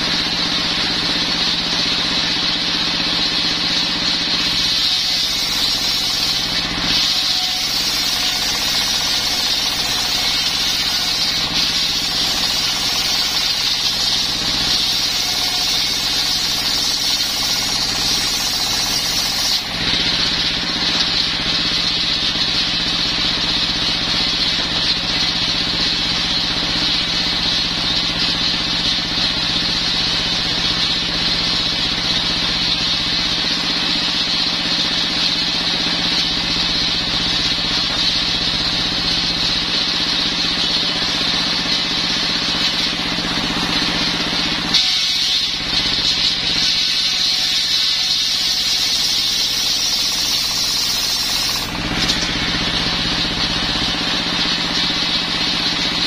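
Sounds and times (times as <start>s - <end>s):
diesel engine running: 0.0s - 44.8s, 51.4s - 56.0s
saw blade ripping wood: 3.6s - 20.6s, 37.2s - 56.0s.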